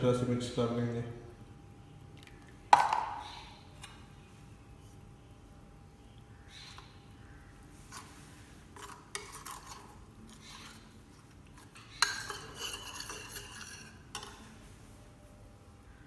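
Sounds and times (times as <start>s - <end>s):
spoon scraping ceramic bowl: 7.9s - 14.5s.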